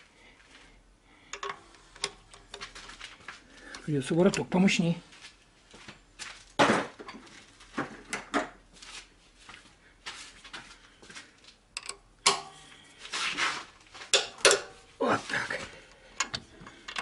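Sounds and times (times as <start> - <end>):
hand tools clanking on metal: 1.3 - 2.6, 14.1 - 14.8.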